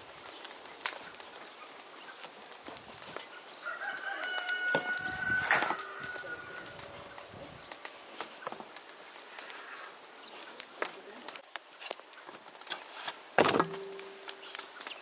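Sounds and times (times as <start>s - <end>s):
rooster crowing: 3.6s - 7.2s.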